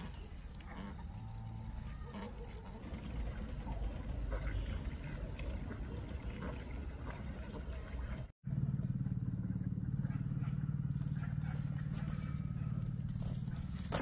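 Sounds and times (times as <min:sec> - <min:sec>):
ducks splashing in water: 0:00.0 - 0:08.4
steady low rumble: 0:00.0 - 0:14.0.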